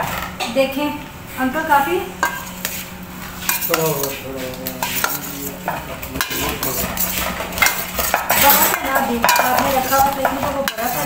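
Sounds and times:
spoon scraping metal bowl: 2.2s - 11.0s.

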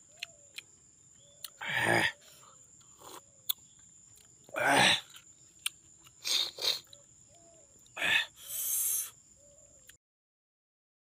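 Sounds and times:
person slurping: 2.9s - 3.2s, 6.1s - 7.0s.

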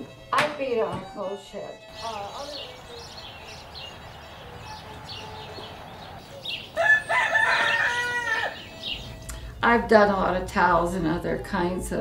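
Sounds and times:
small birds chirping: 1.8s - 9.5s
rooster crowing: 2.8s - 9.1s.

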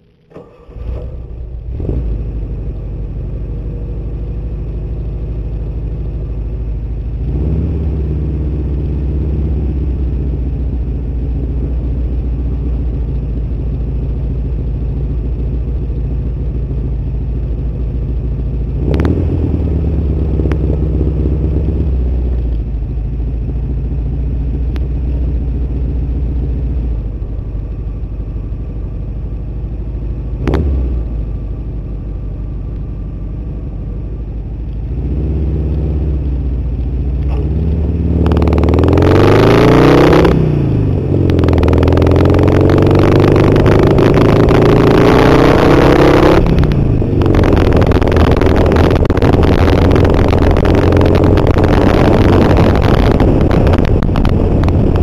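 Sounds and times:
motor trike engine running: 0.0s - 39.0s, 40.4s - 55.0s.

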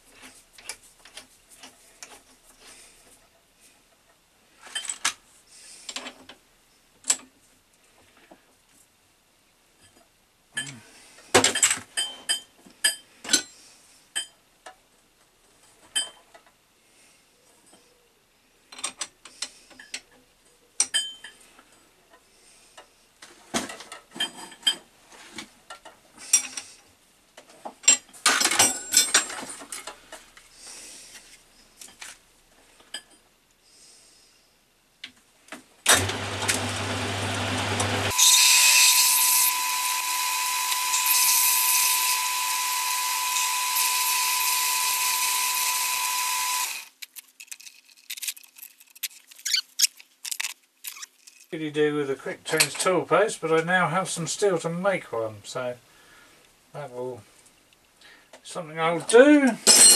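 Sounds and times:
lathe whining: 35.9s - 46.9s
steel tools clinking: 59.6s - 59.9s.

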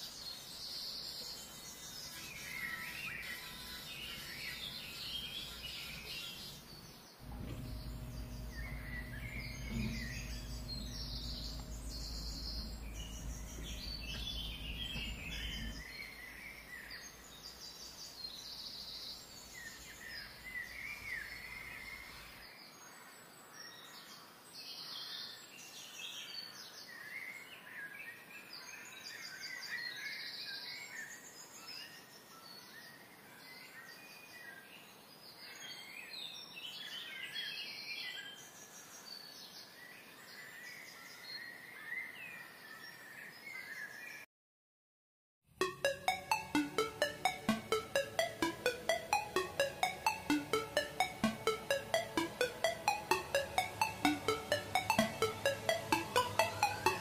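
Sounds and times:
low machine hum: 7.2s - 15.9s.

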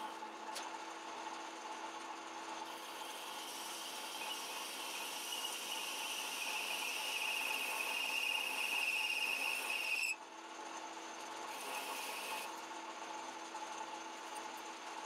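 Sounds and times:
faint steady machine sound: 0.0s - 15.0s
metal lathe cutting whine: 1.9s - 10.2s, 11.4s - 12.5s.

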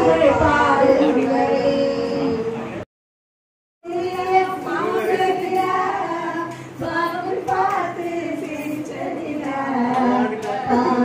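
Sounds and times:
woman singing: 3.8s - 11.0s.

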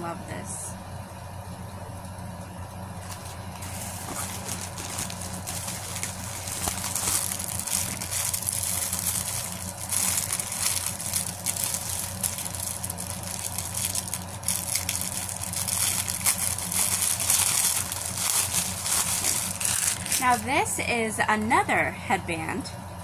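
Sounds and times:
steady low hum: 0.0s - 23.0s
plastic packaging crinkling: 3.0s - 20.5s.

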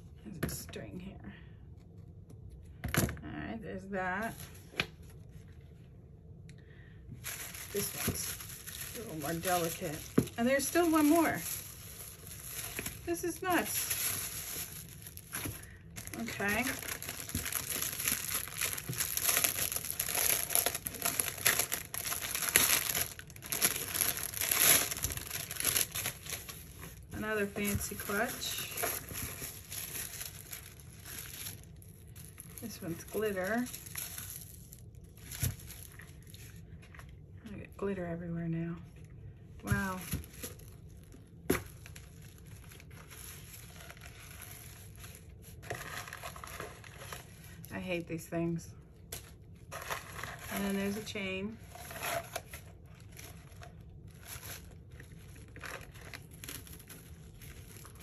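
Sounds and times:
purse rustling: 7.2s - 27.1s
plastic wrapping crinkling: 7.2s - 37.2s, 39.7s - 47.8s, 49.0s - 58.0s.

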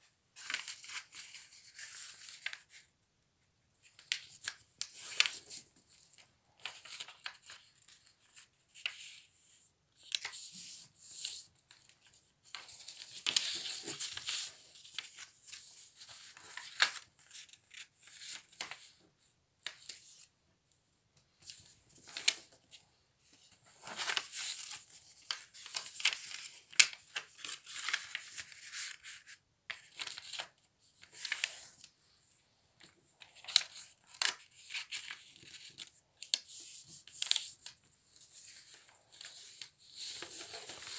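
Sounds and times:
paper rustling and sliding: 23.6s - 32.0s, 32.8s - 40.9s.

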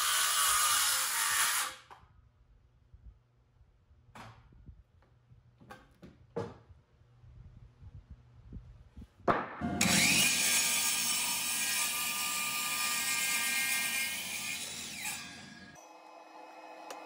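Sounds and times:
miter saw cutting wood: 0.0s - 1.8s, 9.6s - 17.0s.

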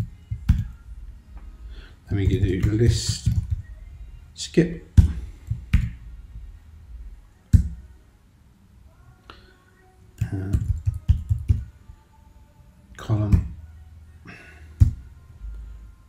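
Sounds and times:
computer keyboard typing: 2.2s - 3.6s, 10.2s - 11.7s.

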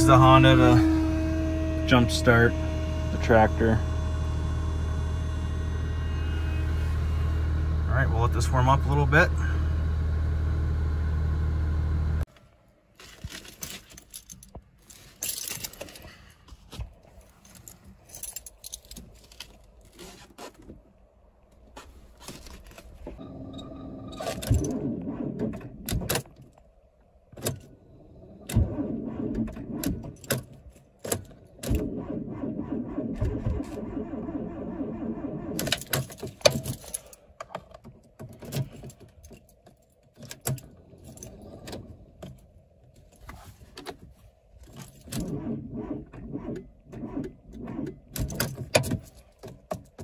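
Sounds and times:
car engine idling: 0.0s - 12.2s
keys rattling: 13.3s - 16.1s, 17.2s - 19.7s, 35.8s - 37.2s.

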